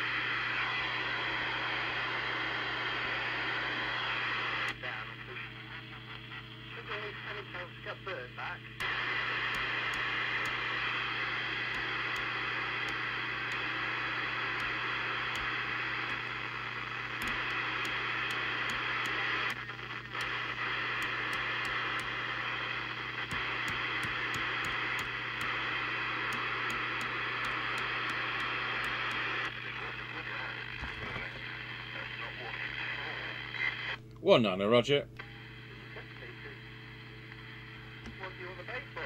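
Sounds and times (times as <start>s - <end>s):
radio receiver hiss: 0.0s - 34.0s, 35.2s - 39.0s
low hum: 8.6s - 30.1s.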